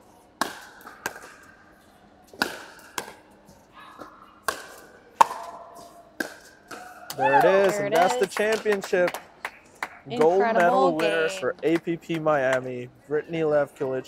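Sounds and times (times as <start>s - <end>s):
paddles hitting plastic ball: 0.4s - 1.6s, 2.3s - 3.2s, 4.0s - 7.0s.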